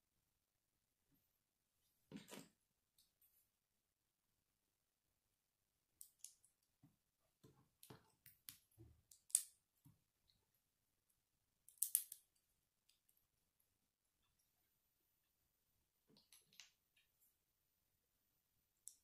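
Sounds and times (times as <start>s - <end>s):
plastic pieces clicking together: 11.7s - 12.2s.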